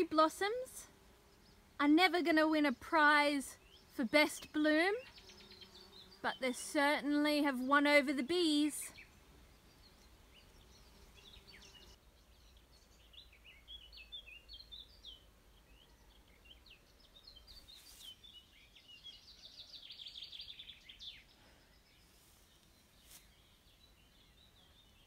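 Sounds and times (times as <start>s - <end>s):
songbird chirping: 0.0s - 25.0s.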